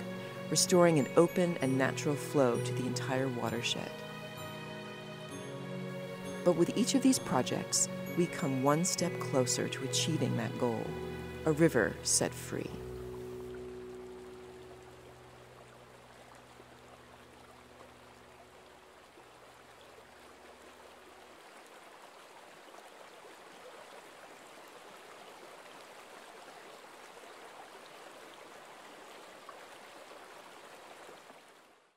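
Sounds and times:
held chord of background music: 0.0 - 17.8
river water flowing: 0.0 - 31.9.

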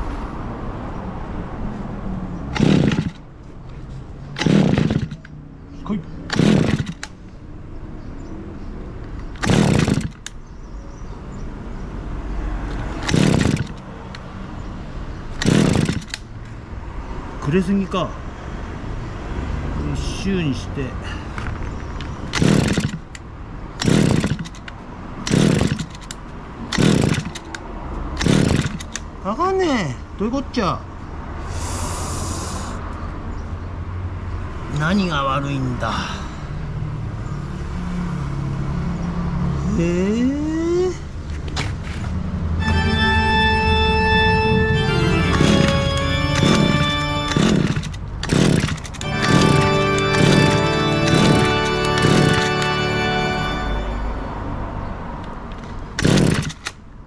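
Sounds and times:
small two-stroke engine running unevenly: 2.6 - 3.2, 4.4 - 5.2, 6.3 - 7.0, 9.4 - 10.2, 13.0 - 13.8, 15.4 - 16.2, 22.3 - 23.1, 23.8 - 24.6, 25.3 - 26.1, 26.7 - 27.4, 28.2 - 28.9, 45.2 - 52.6, 56.0 - 56.5.

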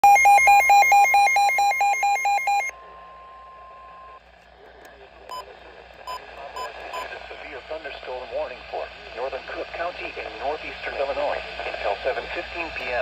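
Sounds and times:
rapid alert beeping: 0.0 - 2.7
steady alarm tone: 0.0 - 4.2.

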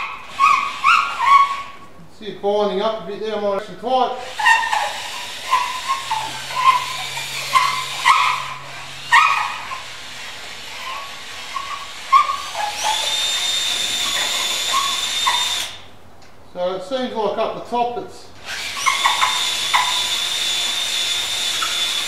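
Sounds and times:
electric drill running: 0.0 - 1.6, 4.2 - 15.9, 18.4 - 22.0
dog whimpering: 0.0 - 1.8, 4.3 - 9.8, 10.8 - 13.2, 14.0 - 15.8.

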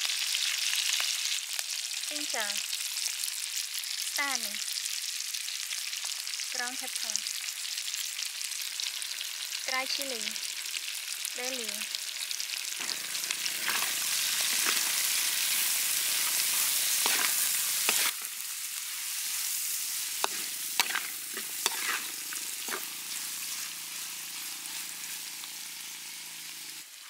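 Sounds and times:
food sizzling in hot oil: 0.0 - 27.0
ladle clinking and scraping wok: 13.6 - 18.3, 20.2 - 23.6.

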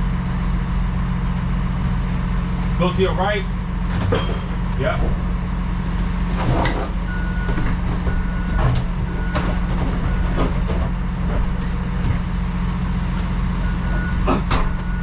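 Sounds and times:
low engine hum: 0.0 - 15.0
backup alarm beeping: 2.2 - 15.0.

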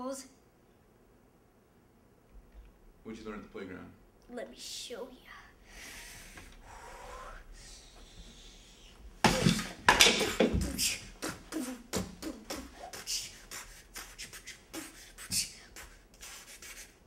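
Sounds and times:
girl beatboxing: 7.3 - 17.0
chair clattering over: 9.3 - 10.7.

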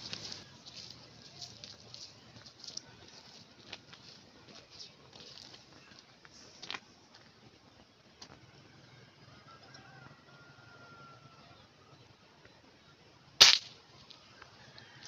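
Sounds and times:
small birds chirping: 0.0 - 6.1
sharp click: 13.4 - 13.7.

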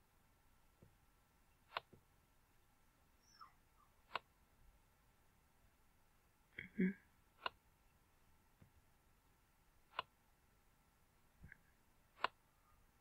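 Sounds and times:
computer mouse clicks: 1.6 - 2.0, 4.0 - 4.3, 7.4 - 7.6, 9.9 - 10.2, 12.2 - 12.4.

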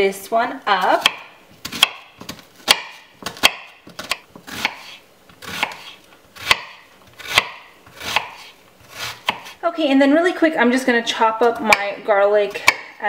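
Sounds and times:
knife slicing onion: 0.7 - 9.6.

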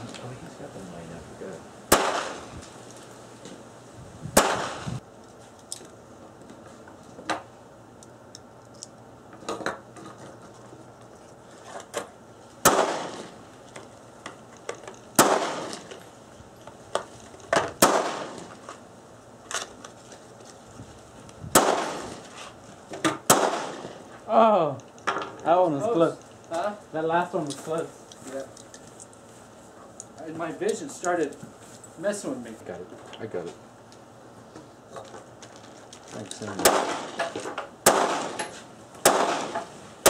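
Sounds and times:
handgun shots with echo: 1.9 - 2.5, 4.4 - 4.9, 12.6 - 13.3, 15.2 - 15.9, 17.8 - 18.5, 21.5 - 22.2, 23.3 - 23.9, 36.6 - 39.7.

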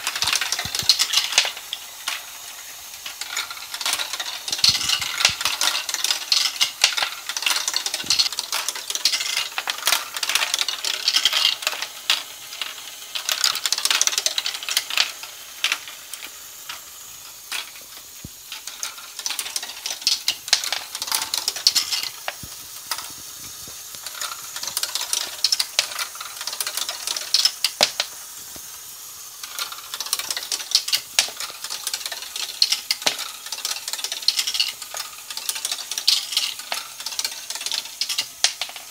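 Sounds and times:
plastic balls clattering: 0.0 - 38.9.

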